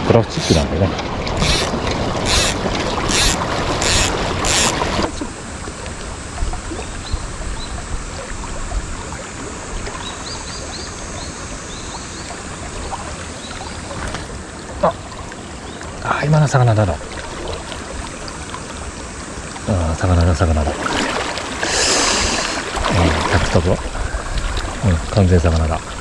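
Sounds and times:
river water rushing: 0.0 - 19.7, 20.7 - 25.2
sharp noises: 0.2 - 5.4.

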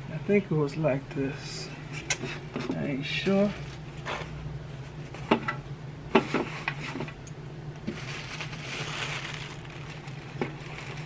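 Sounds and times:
plastic bag crinkling: 7.8 - 11.0.

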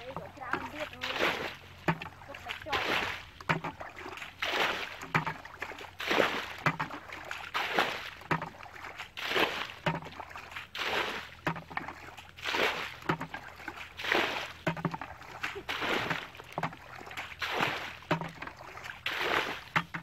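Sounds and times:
bucket scooping and water splashing: 0.0 - 20.0.

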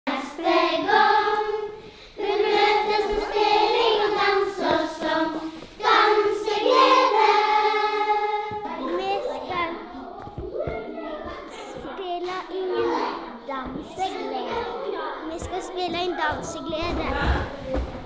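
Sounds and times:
children's choir singing: 0.1 - 10.4.

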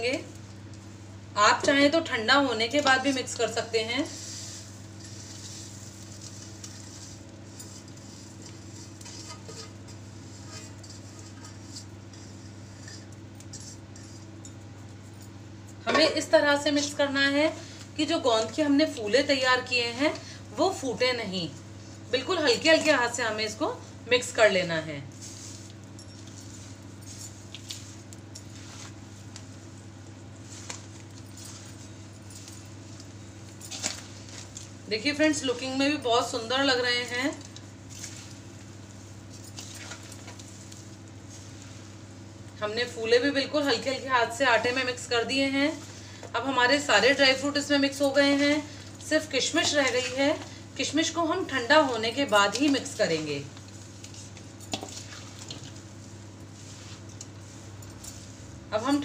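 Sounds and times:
steady low hum: 0.0 - 59.0
dry rustling pour: 3.8 - 14.2, 25.1 - 42.6, 51.8 - 59.0
spoon scraping in steel bowl: 4.0 - 15.0.

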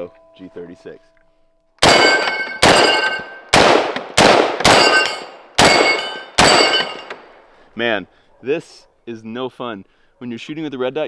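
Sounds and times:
rifle shots: 1.8 - 7.3
metallic ring: 1.9 - 3.5, 4.7 - 7.2.

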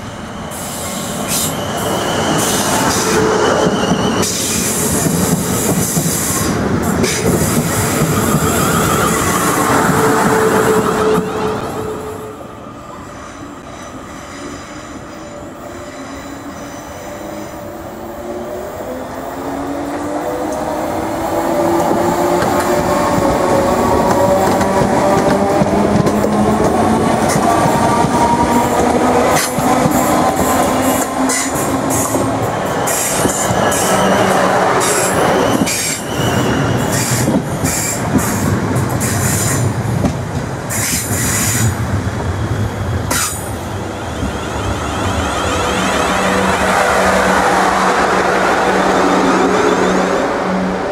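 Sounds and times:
low train rumble: 0.0 - 50.9
high wheel squeal: 0.3 - 5.0, 30.8 - 38.0.

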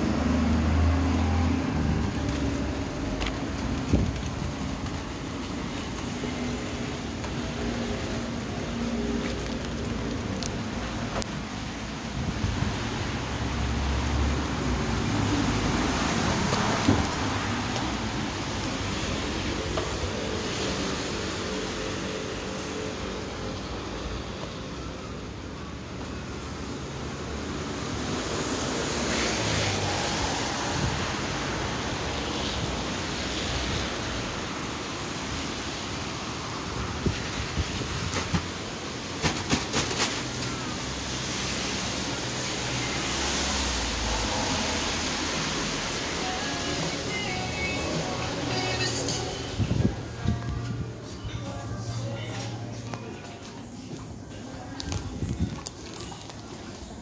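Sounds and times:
rain: 0.0 - 49.7
traffic on wet streets: 0.0 - 57.0.

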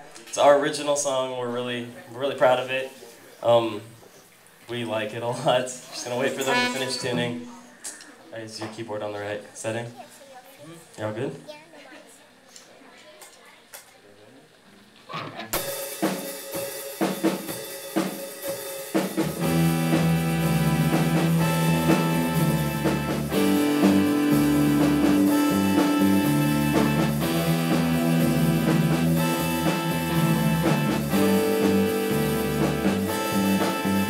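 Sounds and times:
live rock band playing: 6.4 - 7.6, 15.5 - 34.0
drum hits: 15.1 - 34.0.

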